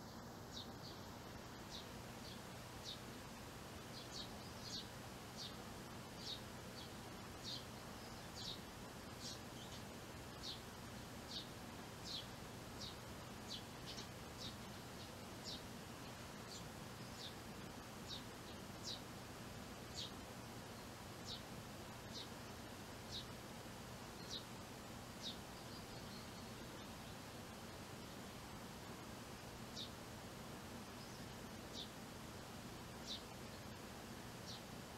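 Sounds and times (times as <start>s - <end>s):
faint steady background noise: 0.0s - 34.9s
sparrow chirping: 3.9s - 5.6s, 6.2s - 10.7s, 11.3s - 19.1s, 19.9s - 20.2s, 20.8s - 22.3s, 23.1s - 23.3s, 24.1s - 24.5s, 25.2s - 27.2s, 31.0s - 32.0s, 33.0s - 33.4s, 34.4s - 34.6s.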